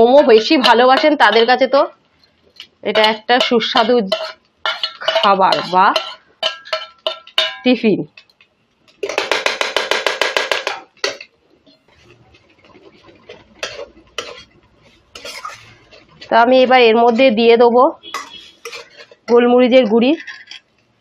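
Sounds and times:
metal spoon scraping a wok: 0:00.1 - 0:07.7, 0:11.0 - 0:16.4, 0:18.0 - 0:20.8.

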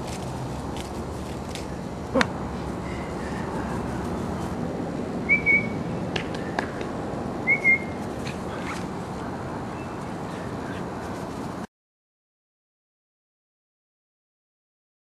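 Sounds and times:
outdoor background hiss: 0:00.0 - 0:11.7
high whistled chirps: 0:05.3 - 0:05.8, 0:07.4 - 0:08.0.

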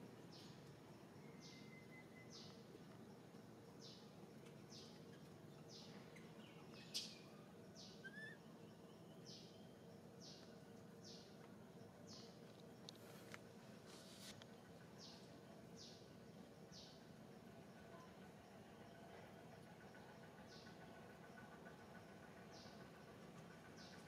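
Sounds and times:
bird chirping: 0:01.2 - 0:02.6, 0:04.7 - 0:11.4.

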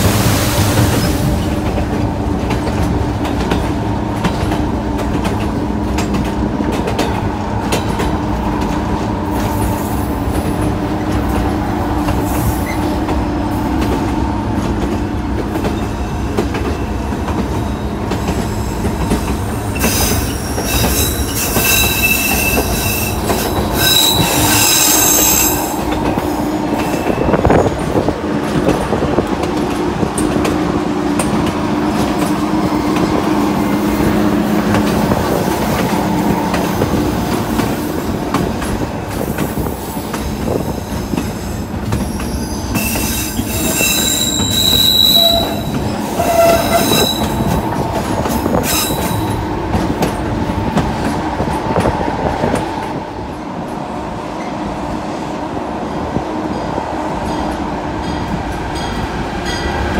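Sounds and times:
train wheels rumbling on rails: 0:00.0 - 0:59.9
high wheel squeal: 0:19.7 - 0:25.8, 0:42.1 - 0:47.6, 0:48.5 - 0:49.4.

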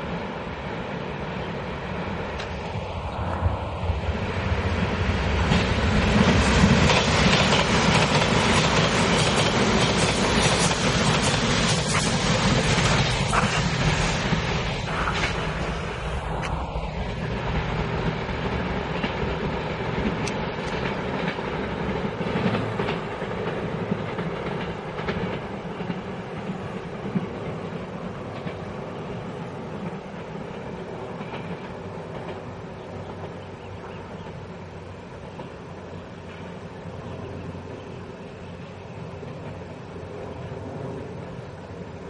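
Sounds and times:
train rolling away: 0:00.0 - 0:42.0
train wheel clicks: 0:05.4 - 0:15.6, 0:17.9 - 0:28.7.

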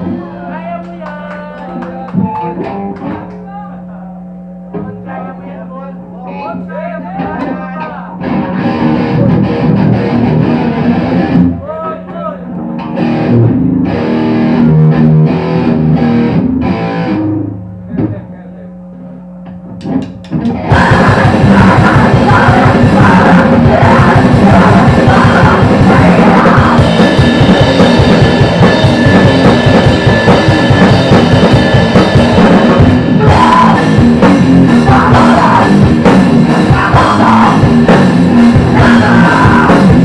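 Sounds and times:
electric guitar: 0:00.0 - 0:05.1, 0:07.2 - 0:18.3, 0:19.0 - 0:40.0
drum kit with cymbals: 0:20.0 - 0:40.0
person singing: 0:20.6 - 0:29.3, 0:32.4 - 0:40.0.

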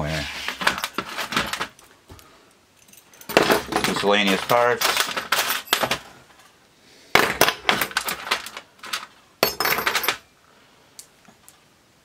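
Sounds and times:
small metal parts clinking: 0:02.8 - 0:06.6, 0:07.2 - 0:10.3.

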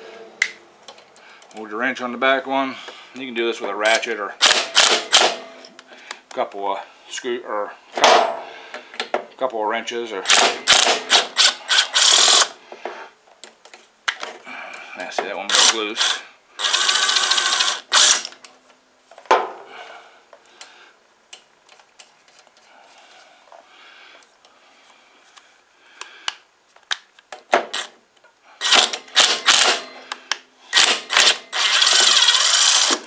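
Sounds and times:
electric ratchet running: 0:04.4 - 0:05.3, 0:10.3 - 0:12.6, 0:15.5 - 0:18.3, 0:28.6 - 0:29.8, 0:30.7 - 0:33.0.

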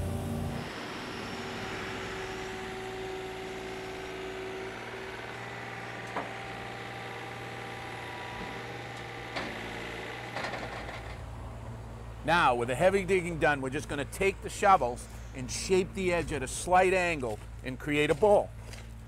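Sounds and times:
diesel engine running: 0:00.0 - 0:19.0.

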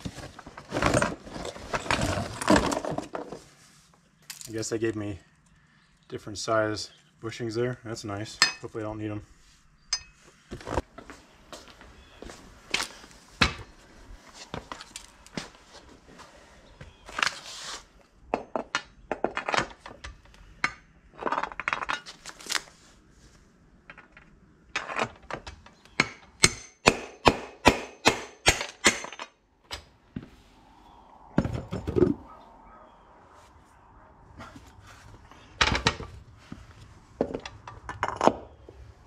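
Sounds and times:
low rumble: 0:30.0 - 0:38.0.

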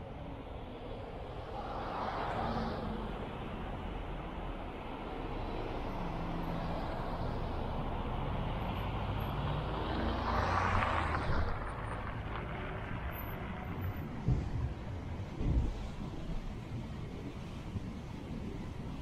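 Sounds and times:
car engine and tyre rumble: 0:00.0 - 0:19.0
car passing close: 0:05.1 - 0:14.8.

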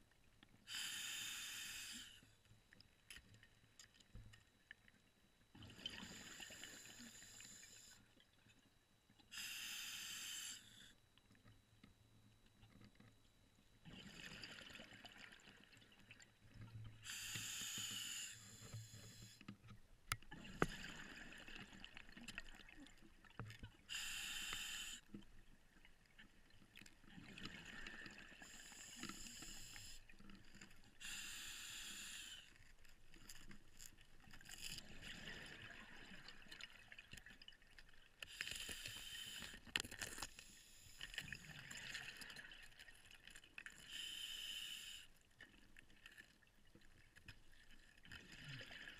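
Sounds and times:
regulator inhalation hiss: 0:00.7 - 0:02.2, 0:09.3 - 0:10.9, 0:17.0 - 0:19.4, 0:23.9 - 0:25.1, 0:28.5 - 0:30.0, 0:31.0 - 0:32.5, 0:38.3 - 0:39.6, 0:43.9 - 0:45.1
exhaled bubbles underwater: 0:13.8 - 0:17.0.

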